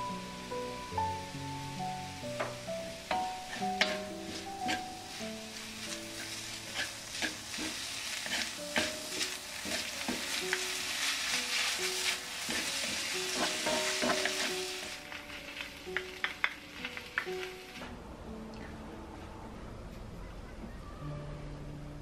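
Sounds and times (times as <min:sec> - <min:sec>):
food sizzling in a wok: 0:00.0 - 0:17.9
wooden spatula scraping pan: 0:03.4 - 0:05.0, 0:06.1 - 0:10.4, 0:11.5 - 0:14.7.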